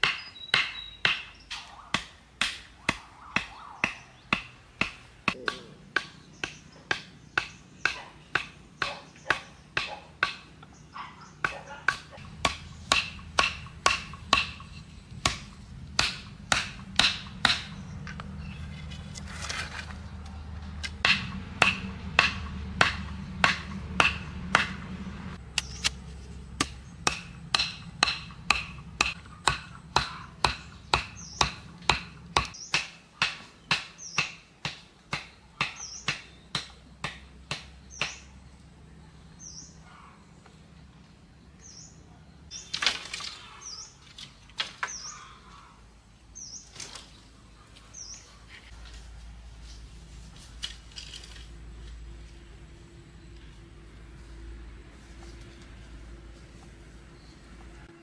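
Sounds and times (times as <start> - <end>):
machete chopping bamboo: 0.0 - 10.6, 11.4 - 18.3, 20.8 - 24.8, 25.5 - 38.3.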